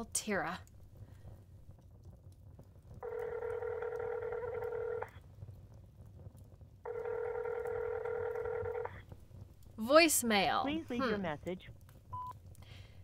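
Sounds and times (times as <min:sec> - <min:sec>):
telephone ringback tone: 0:03.0 - 0:05.1, 0:06.9 - 0:08.9.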